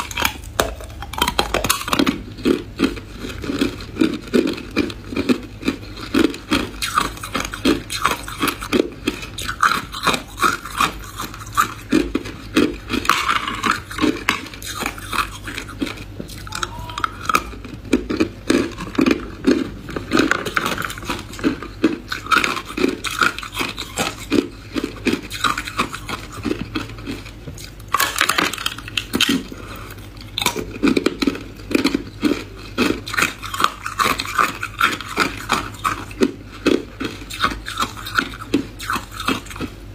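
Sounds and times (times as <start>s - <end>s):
ice crunched between teeth: 0.0s - 29.5s.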